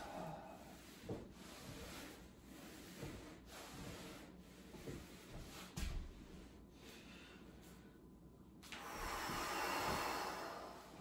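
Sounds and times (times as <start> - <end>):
man breathing: 0.0 - 1.1, 6.7 - 11.0.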